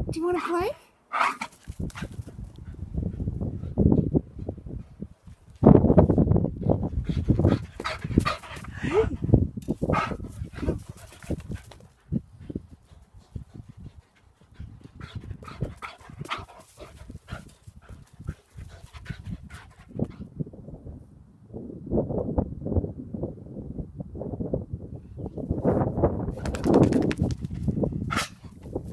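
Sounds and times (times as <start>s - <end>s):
dog panting: 1.9s - 5.0s, 6.6s - 9.3s, 10.0s - 20.3s.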